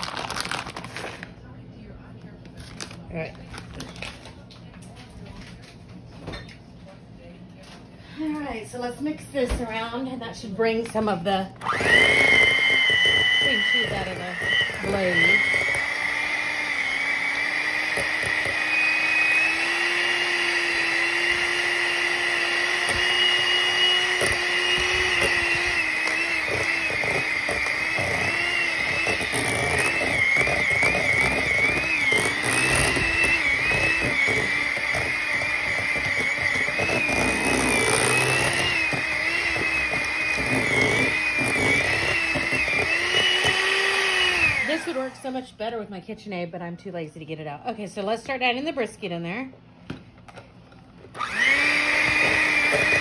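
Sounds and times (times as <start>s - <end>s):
electric hand mixer whining: 11.0s - 45.4s, 51.1s - 53.0s.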